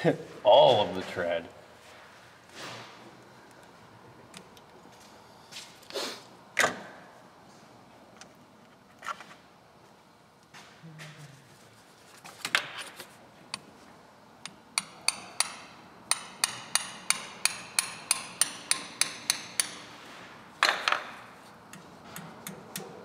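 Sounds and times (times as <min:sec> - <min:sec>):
hammer tapping on metal socket: 0:14.8 - 0:19.8.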